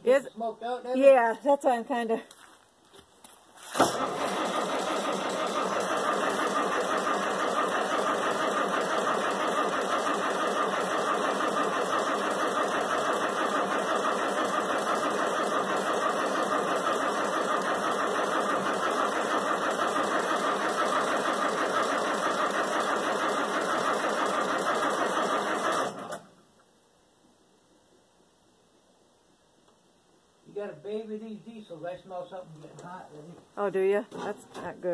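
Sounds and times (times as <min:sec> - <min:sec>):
diesel engine starter cranking: 0:03.6 - 0:26.4.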